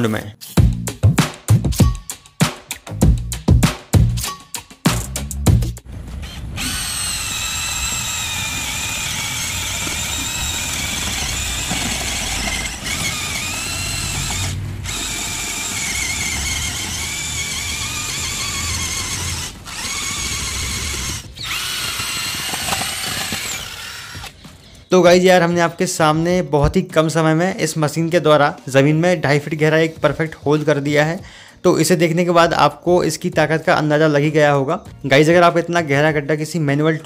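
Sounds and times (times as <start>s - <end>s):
cordless drill motor whining: 6.2s - 24.7s.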